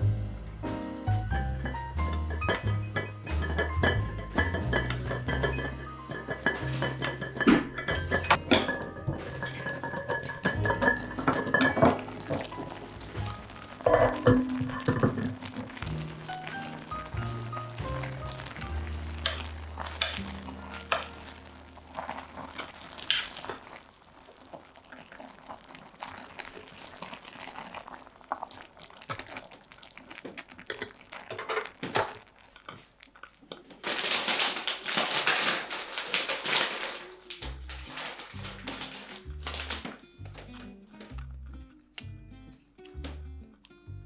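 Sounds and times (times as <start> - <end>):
ladle clinking and scraping pot: 1.6 - 23.9.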